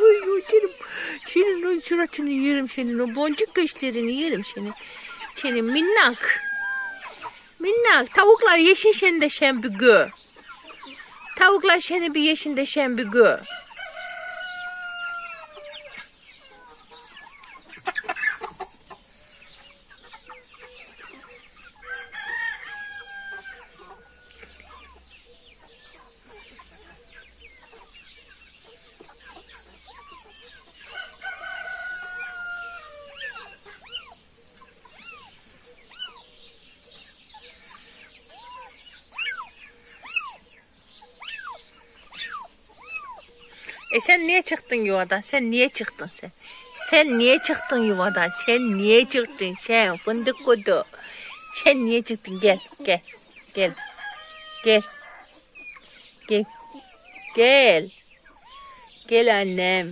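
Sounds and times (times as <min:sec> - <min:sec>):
chickens clucking: 0:00.0 - 0:59.9
rooster crowing: 0:05.4 - 0:07.2, 0:13.4 - 0:15.9, 0:21.8 - 0:24.5, 0:30.9 - 0:33.5, 0:46.5 - 0:49.1, 0:53.8 - 0:55.3.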